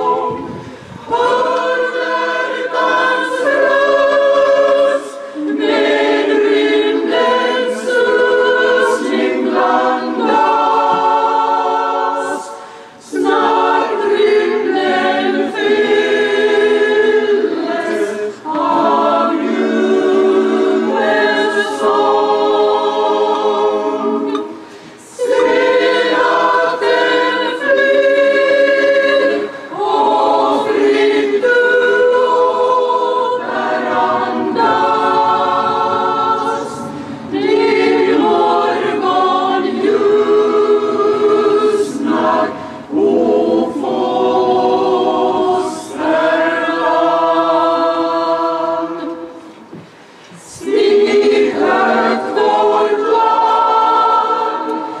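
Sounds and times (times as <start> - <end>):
mixed choir singing a cappella: 0.0 - 55.0.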